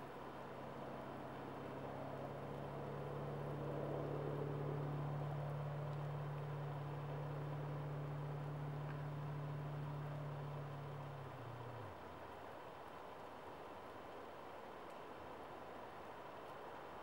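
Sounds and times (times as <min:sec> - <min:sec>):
vehicle engine humming: 0:00.7 - 0:12.8.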